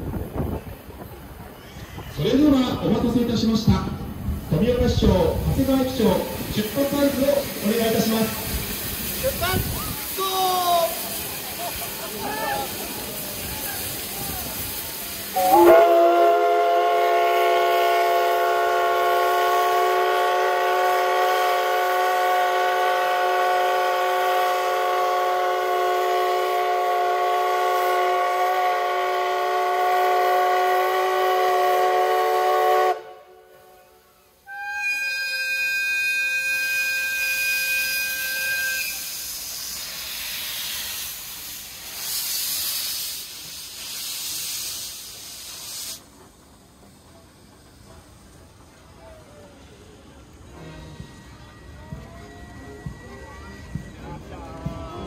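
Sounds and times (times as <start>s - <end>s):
steam hissing: 4.0s - 55.0s
steam locomotive whistle: 15.3s - 41.3s, 50.5s - 54.8s
electric locomotive horn: 15.4s - 39.0s.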